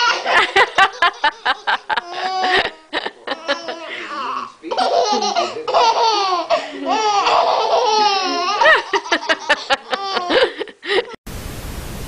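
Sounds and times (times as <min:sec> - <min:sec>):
baby laughing: 0:00.0 - 0:11.2.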